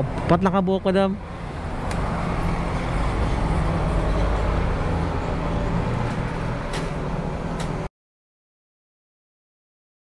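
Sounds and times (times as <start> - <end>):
road traffic rumble: 0.0 - 7.9.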